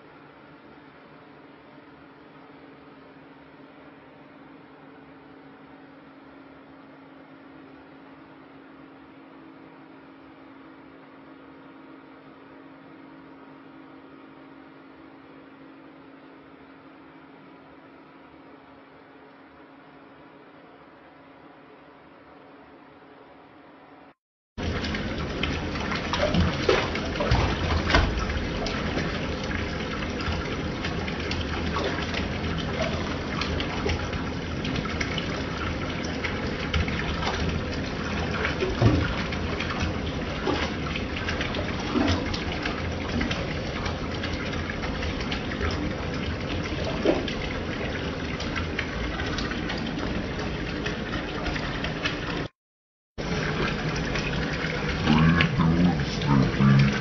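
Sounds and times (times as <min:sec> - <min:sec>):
knocks or splashes: 0:24.6 - 0:29.3, 0:38.3 - 0:43.5
water pouring into bathtub: 0:24.6 - 0:52.5, 0:53.2 - 0:57.0.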